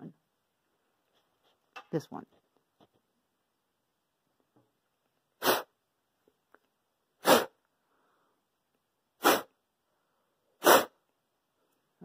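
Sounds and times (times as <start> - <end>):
breath puffs through cloth mask: 5.4 - 5.8, 7.2 - 8.5, 9.2 - 9.6, 10.5 - 11.0.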